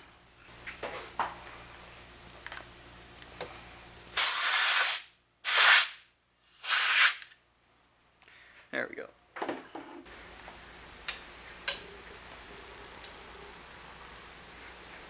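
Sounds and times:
compressed air blasts hissing: 4.2s - 7.3s.

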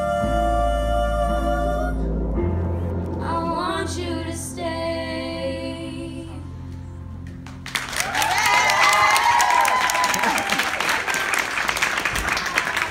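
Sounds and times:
women singing: 0.0s - 2.1s, 3.2s - 6.5s
audience applause and cheering: 7.4s - 12.9s.

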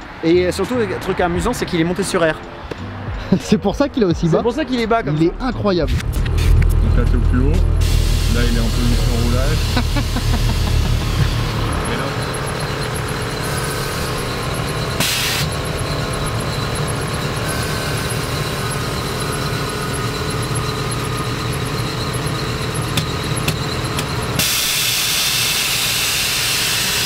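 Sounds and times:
air suspension running: 5.4s - 27.0s
air hissing: 7.6s - 15.6s, 23.0s - 27.0s.

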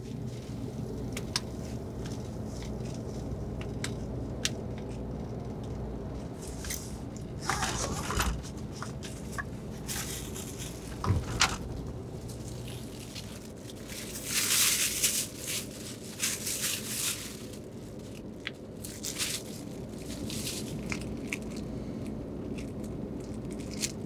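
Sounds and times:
bus cabin drone: 0.0s - 24.0s
crinkly rustling of bags: 6.4s - 24.0s.

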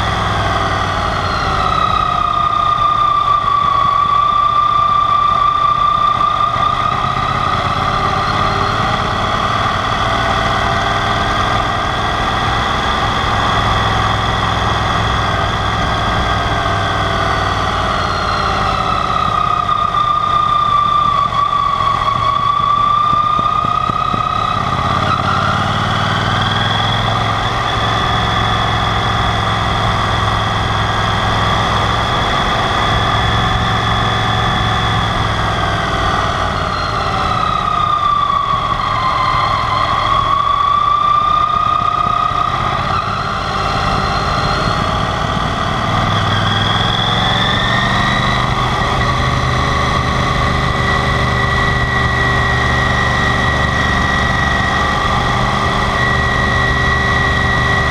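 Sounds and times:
motorcycle engine running: 0.0s - 57.9s
road noise: 0.0s - 57.9s.

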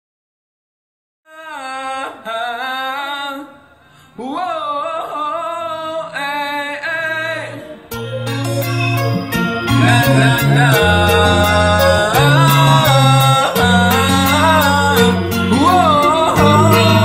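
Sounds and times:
man singing long held notes: 1.3s - 8.7s, 9.3s - 17.0s
backing track with heavy bass beat: 7.9s - 17.0s.

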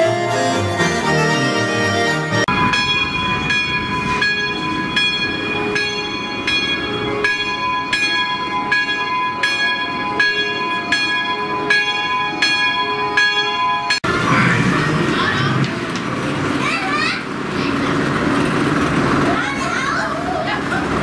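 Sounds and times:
church bell tolling: 2.5s - 15.0s.

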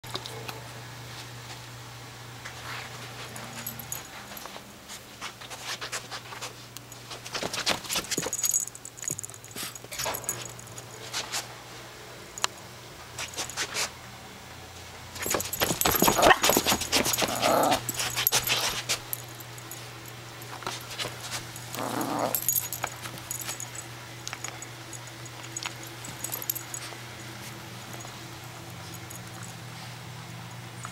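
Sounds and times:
puppy scuffling and rustling: 2.4s - 11.6s, 15.2s - 30.2s
collar tag jingling: 3.2s - 4.6s, 6.8s - 11.2s, 13.2s - 13.8s, 15.2s - 29.9s
puppy growling whine: 15.3s - 18.6s, 21.5s - 23.7s.

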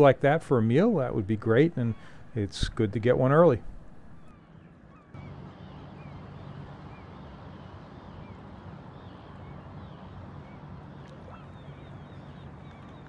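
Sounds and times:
low motor-like hum: 0.0s - 13.0s
high chirping bird calls: 1.0s - 2.7s.

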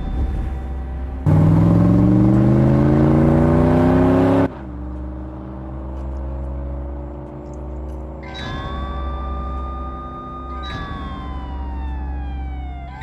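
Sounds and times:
car engine accelerating: 1.2s - 10.6s.

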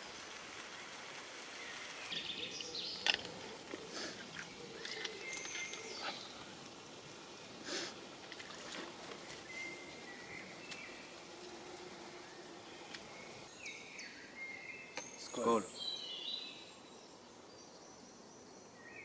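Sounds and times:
birds chirping: 1.5s - 19.0s.

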